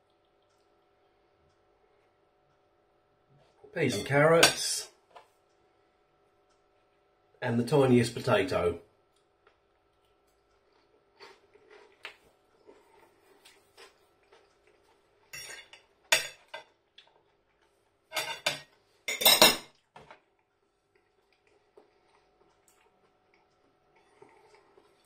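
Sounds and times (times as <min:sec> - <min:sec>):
cutlery scraping on ceramic plate: 0:18.1 - 0:19.6.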